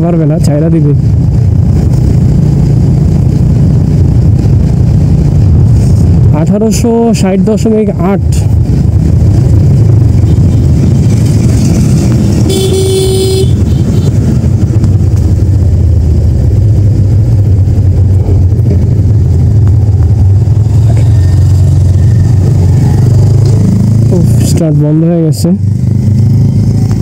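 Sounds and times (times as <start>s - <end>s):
motorcycle engine rumble: 0.0s - 27.0s
wind noise: 0.8s - 24.2s
vehicle horn: 12.4s - 14.2s.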